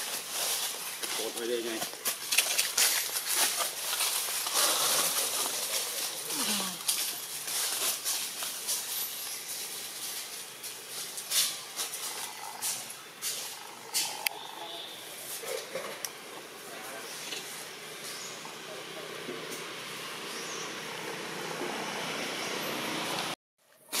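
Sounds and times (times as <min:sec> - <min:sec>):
dry leaves rustling: 0:00.0 - 0:18.2
steady outdoor hiss: 0:00.0 - 0:24.0.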